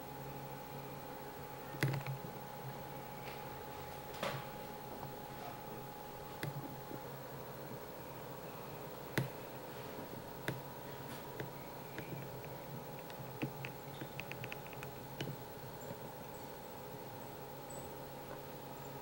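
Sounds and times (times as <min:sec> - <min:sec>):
low room hum: 0:00.0 - 0:19.0
sharp clicks: 0:01.7 - 0:02.2, 0:11.3 - 0:16.1.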